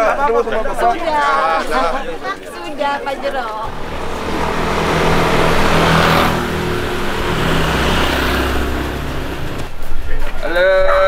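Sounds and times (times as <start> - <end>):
vehicle engine humming: 3.6 - 9.9.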